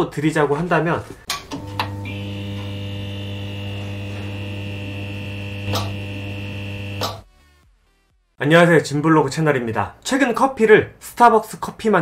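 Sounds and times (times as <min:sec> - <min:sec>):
neon sign buzzing: 0:01.4 - 0:07.2.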